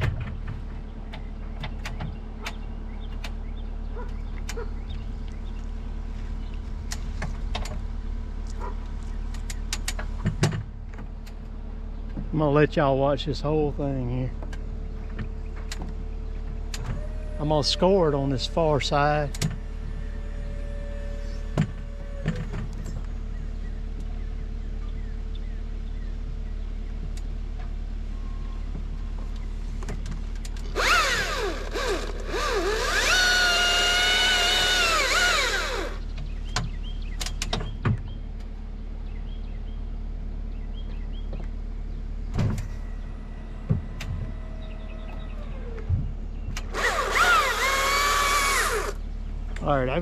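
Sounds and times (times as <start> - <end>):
chainsaw idling and revving: 30.7 - 36.0, 46.7 - 49.0.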